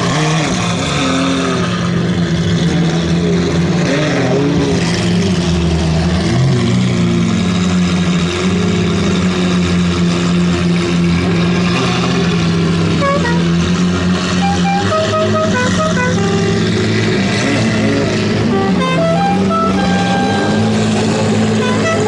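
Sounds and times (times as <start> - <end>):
car engines idling: 1.8 - 3.8, 4.7 - 22.0
short musical notes: 13.0 - 13.5, 14.4 - 17.0, 18.4 - 22.0.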